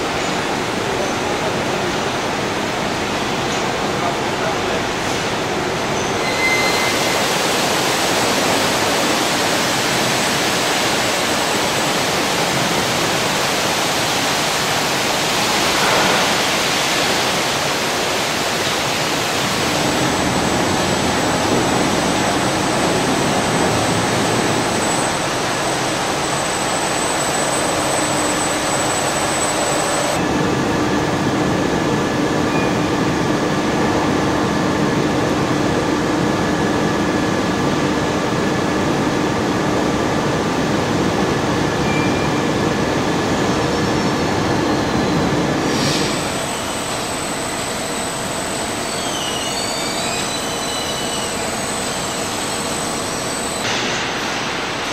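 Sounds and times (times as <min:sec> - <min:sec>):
machinery rushing noise: 0:06.2 - 0:30.6.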